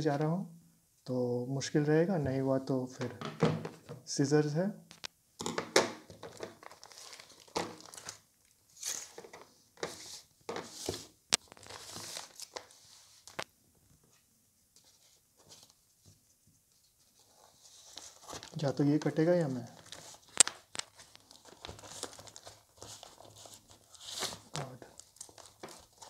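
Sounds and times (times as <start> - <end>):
plastic mailer crinkling: 6.1 - 13.4, 17.2 - 26.0.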